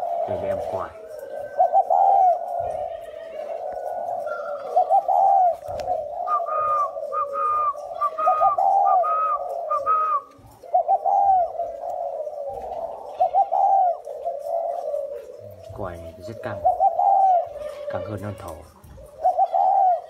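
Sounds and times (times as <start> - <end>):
high whistle-like dove notes: 0.0 - 12.4
dove cooing low: 0.0 - 20.0.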